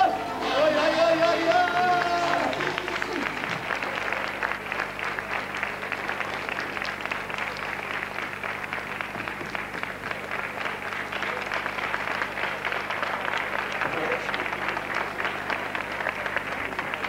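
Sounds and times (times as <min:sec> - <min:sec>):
audience clapping: 0:00.4 - 0:17.0.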